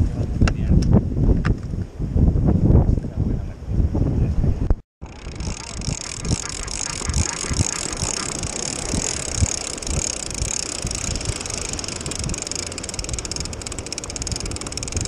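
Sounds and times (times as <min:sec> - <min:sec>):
wind buffeting microphone: 0:00.0 - 0:15.0
fishing reel whirring: 0:05.0 - 0:15.0.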